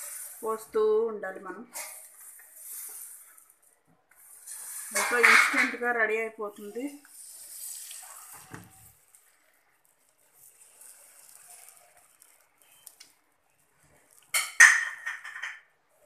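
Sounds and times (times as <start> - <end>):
batter sizzling on a pan: 0.0 - 16.0
ladle scraping and clinking on pan: 4.2 - 5.9.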